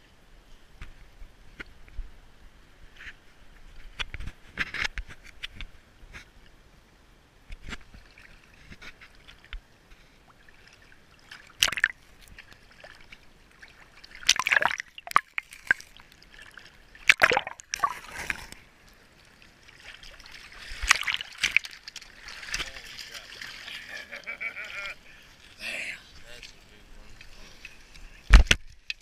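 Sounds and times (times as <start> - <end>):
stream water sloshing and splashing: 7.5 - 29.0
water trickling: 10.3 - 29.0.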